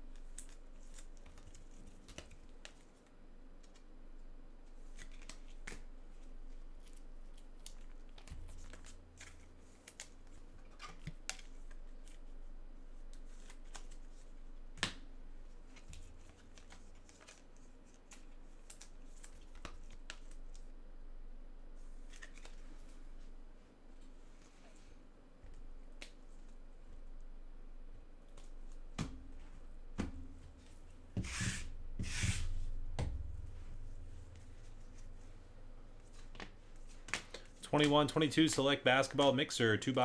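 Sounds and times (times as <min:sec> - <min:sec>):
cards clicking and rustling: 0:13.1 - 0:14.2, 0:15.7 - 0:20.6, 0:22.0 - 0:22.9.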